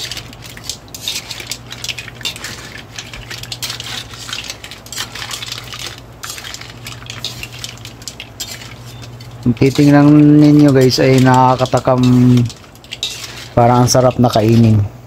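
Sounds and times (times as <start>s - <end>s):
metal spatula scraping in wok: 0.0s - 14.8s
low steady hum: 0.0s - 15.0s.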